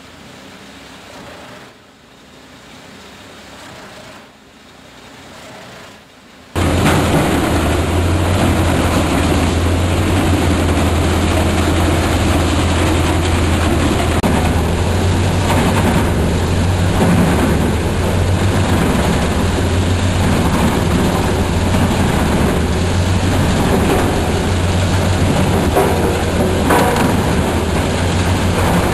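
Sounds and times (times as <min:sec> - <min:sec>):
wood chipper chipping logs: 0:06.6 - 0:28.9.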